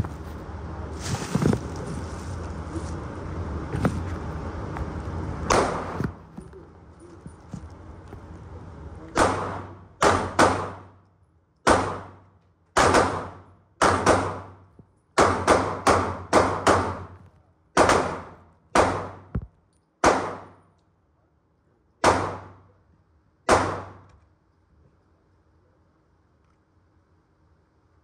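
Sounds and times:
pistol shots echoing: 5.5s - 6.0s, 9.2s - 11.0s, 11.6s - 12.2s, 12.8s - 14.6s, 15.2s - 17.1s, 17.8s - 19.3s, 20.0s - 20.6s, 22.0s - 22.7s, 23.5s - 24.1s.

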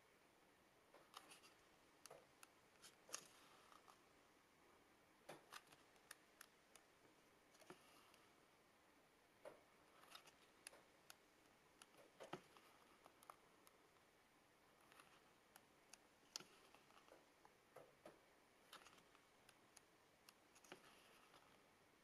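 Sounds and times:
book pages turning: 18.6s - 19.6s.

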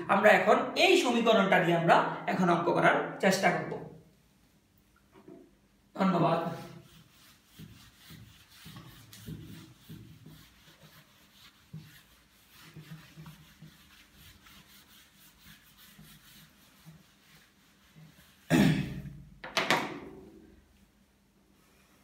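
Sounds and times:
duster wiping whiteboard: 6.0s - 19.1s
man coughing: 18.5s - 19.1s.

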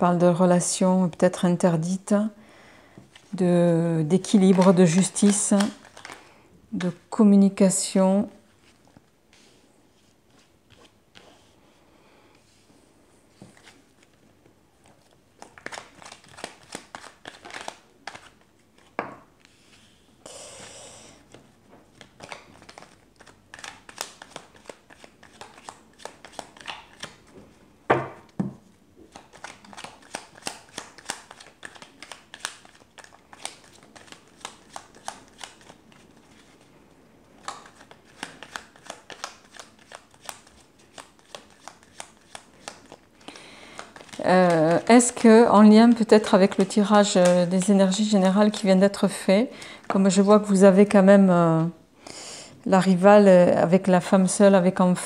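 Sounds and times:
cards shuffling and clicking: 4.2s - 6.2s, 14.8s - 19.5s, 21.3s - 27.3s, 29.1s - 36.6s, 37.4s - 45.2s, 45.9s - 47.9s.

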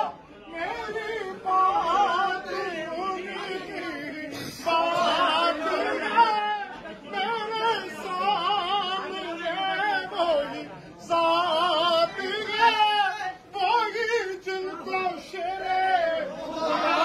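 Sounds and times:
person singing unaccompanied: 0.0s - 17.0s.

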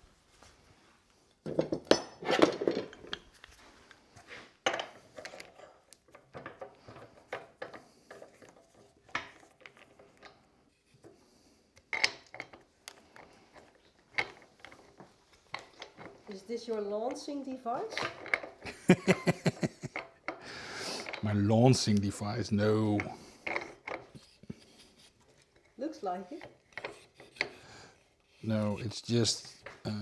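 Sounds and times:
metal clinks and knocks: 11.8s - 20.4s.

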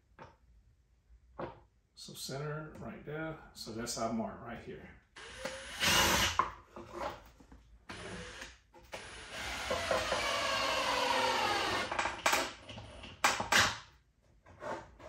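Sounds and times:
drill driving screw into wood: 5.2s - 6.5s, 7.9s - 13.8s.

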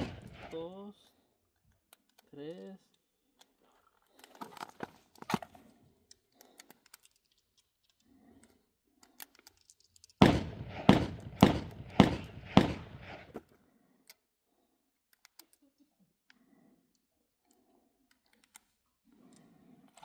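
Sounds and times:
gunshots: 0.0s - 0.6s, 10.2s - 13.3s.

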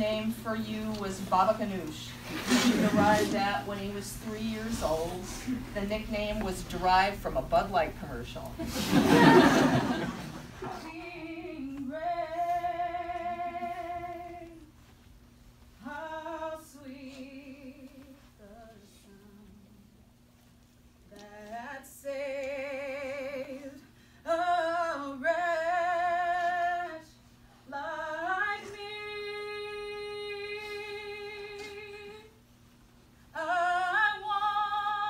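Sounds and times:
woman singing with vibrato: 10.6s - 14.7s, 15.8s - 19.8s, 21.1s - 32.4s, 33.3s - 35.0s.

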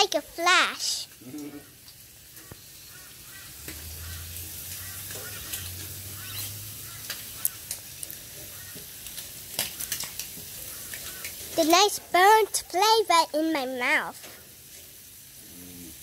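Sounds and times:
bacon sizzling: 0.0s - 16.0s.

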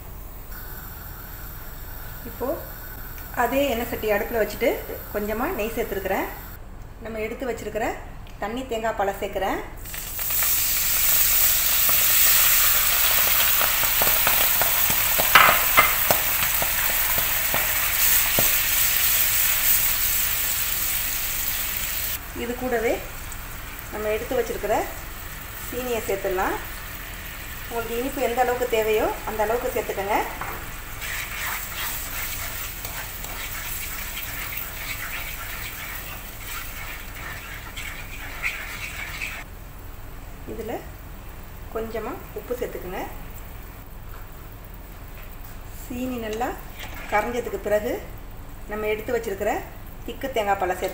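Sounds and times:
coconut milk sizzling in pan: 0.0s - 6.6s, 9.8s - 43.7s, 44.3s - 50.9s
wooden spoon scraping a pan: 31.0s - 39.4s.

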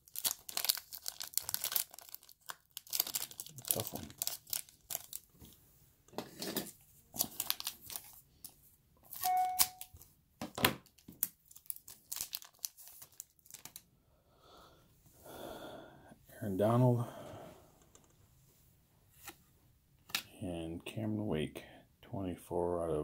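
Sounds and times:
foil wrapper ripping and crinkling: 0.0s - 5.3s, 7.1s - 8.2s, 10.9s - 13.8s.

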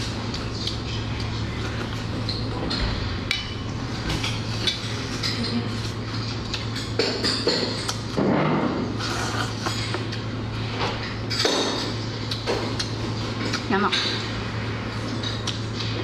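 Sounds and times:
steady low hum: 0.0s - 16.0s
clinks against a steel bowl: 11.3s - 12.0s
chewing and mouth noises: 12.2s - 13.7s, 14.9s - 16.0s.

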